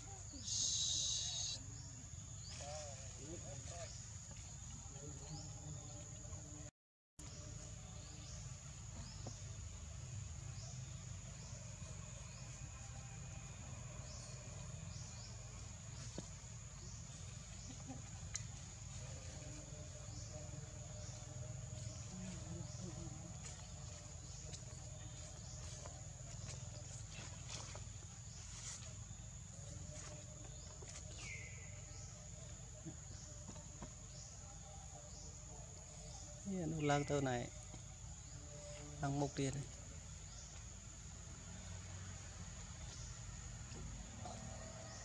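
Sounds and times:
high-pitched insect drone: 0.4 - 1.7.

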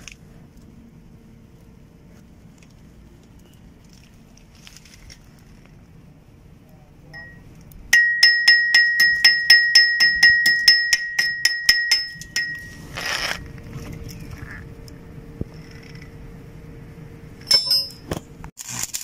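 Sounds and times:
hammer striking metal: 7.2 - 12.8.

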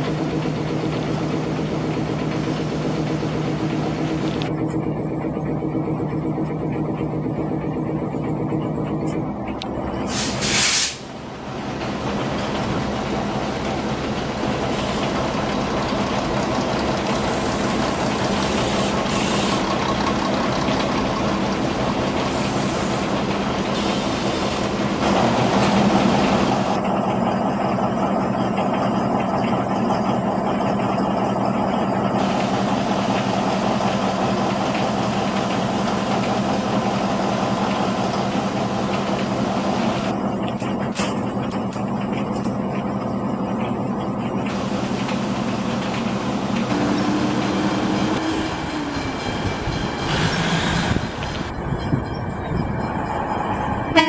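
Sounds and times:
diesel train engines running: 0.0 - 54.0
burst of hissing air: 10.1 - 11.1.

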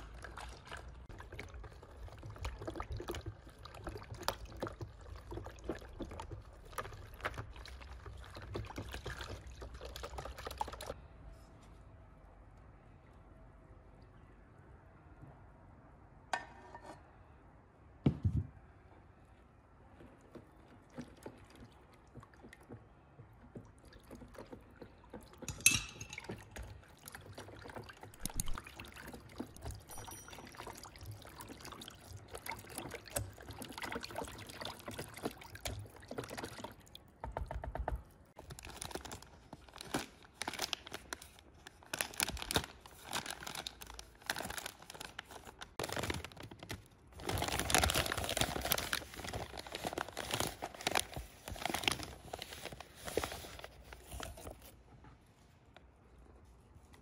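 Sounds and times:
paper bag rustling: 38.4 - 54.8.

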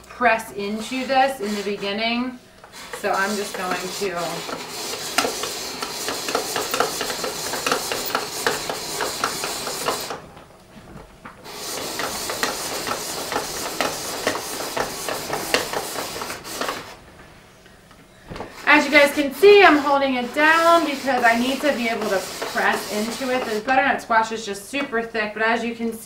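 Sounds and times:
spiralizer blade crunching squash: 0.1 - 10.2, 11.4 - 17.0.

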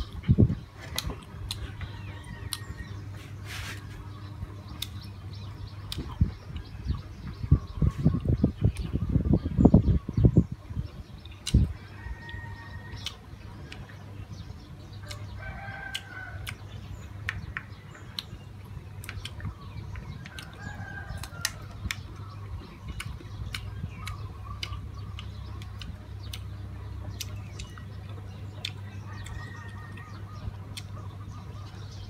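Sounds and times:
chewing: 0.0 - 4.1, 18.1 - 31.4
chickens calling: 0.0 - 32.0.

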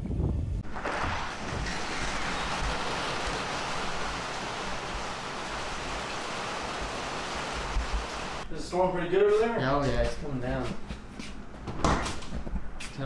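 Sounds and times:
heavy rain on a metal roof: 0.6 - 8.4.

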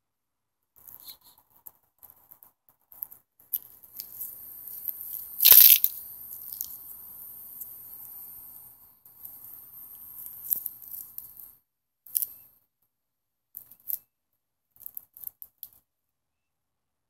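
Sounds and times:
short crackles: 5.1 - 6.8.

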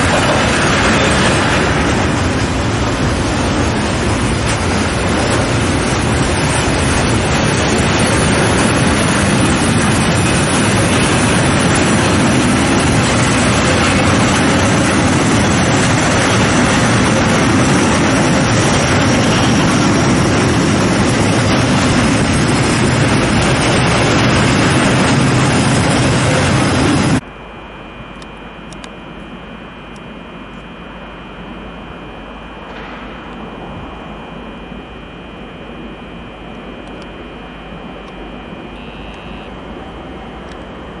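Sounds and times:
train wheels clattering on rails: 0.0 - 27.2
faint steady whine: 26.3 - 41.0.

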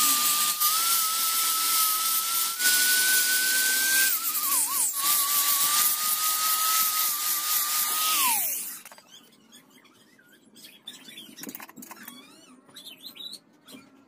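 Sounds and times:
rotary grinder whining: 0.0 - 9.3.

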